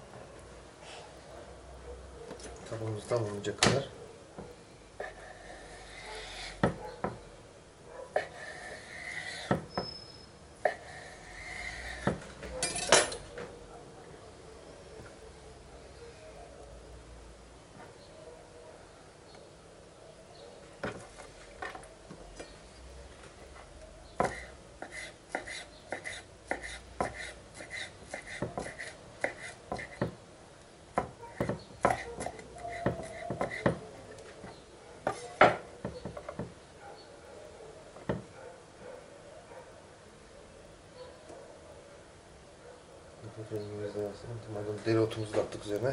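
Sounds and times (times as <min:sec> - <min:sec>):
knife chopping on wooden board: 0:06.6 - 0:07.2, 0:09.4 - 0:09.8, 0:12.0 - 0:12.3, 0:24.2 - 0:30.2, 0:31.0 - 0:33.8.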